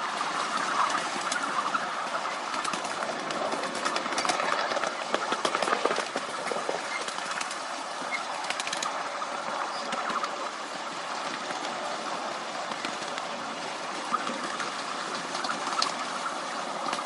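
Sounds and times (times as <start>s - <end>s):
train wheels rolling on rails: 2.2s - 9.0s.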